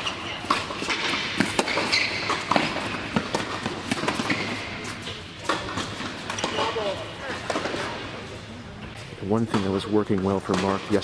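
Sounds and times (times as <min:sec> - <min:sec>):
tennis ball bouncing: 0:00.0 - 0:06.7
sneakers squeaking on court: 0:00.0 - 0:06.9
racquets striking tennis ball: 0:00.0 - 0:07.9.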